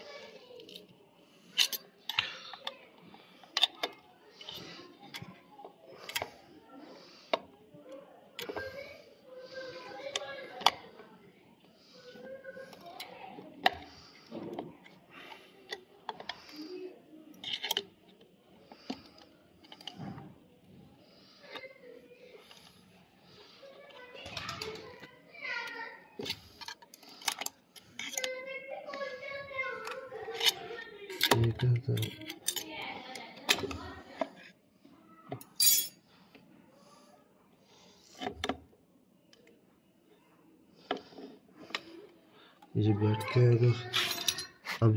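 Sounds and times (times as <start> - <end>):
metal parts and tools clinking: 0.6 - 2.8, 17.4 - 17.9, 26.2 - 28.4, 29.8 - 34.4, 35.4 - 36.0, 43.1 - 44.8
clicks of small parts and tools: 1.5 - 6.4, 7.3 - 8.8, 17.3 - 20.3, 23.9 - 29.0, 29.8 - 34.5, 38.0 - 38.7, 42.6 - 44.8.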